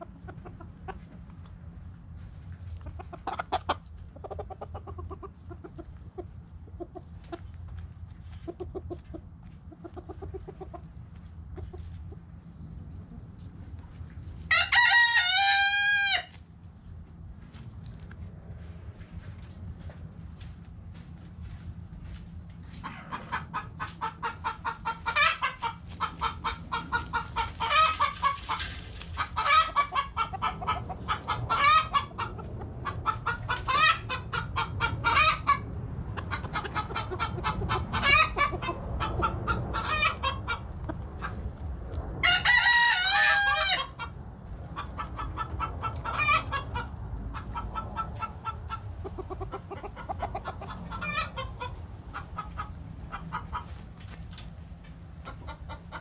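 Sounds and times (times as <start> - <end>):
hens clucking: 0.0 - 14.0, 21.4 - 54.1, 54.9 - 56.0
rooster crowing: 14.5 - 16.4, 42.2 - 43.9.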